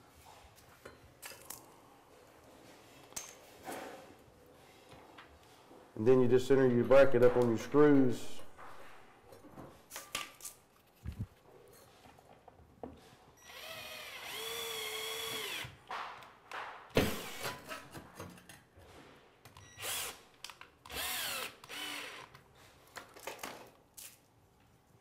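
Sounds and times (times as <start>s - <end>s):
power drill driving screws: 13.4s - 15.8s, 17.0s - 17.8s, 19.8s - 20.2s, 20.9s - 22.4s.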